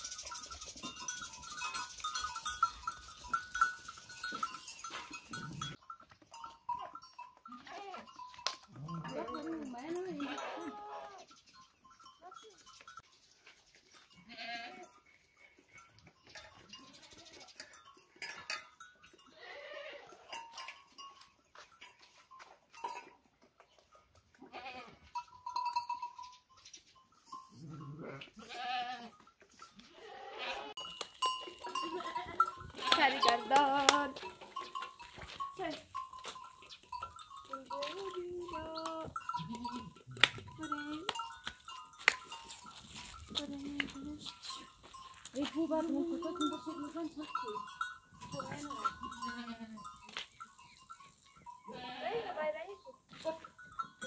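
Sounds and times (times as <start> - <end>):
light clinks: 0.0 - 10.3, 15.7 - 19.3, 20.2 - 24.1, 30.8 - 52.0
small bell ringing: 0.0 - 13.2, 14.0 - 23.2, 25.1 - 28.0, 28.6 - 54.0
hoof clicks on earth: 0.0 - 19.2, 20.3 - 27.5, 28.2 - 54.0
sheep and goats bleating: 0.4 - 11.4, 14.0 - 15.1, 16.3 - 20.8, 24.3 - 26.0, 27.4 - 41.4, 42.0 - 54.0
sheep bleating: 8.7 - 11.3, 14.2 - 14.9, 19.3 - 20.3, 24.4 - 25.0, 27.6 - 29.2, 29.9 - 30.8, 51.7 - 52.6.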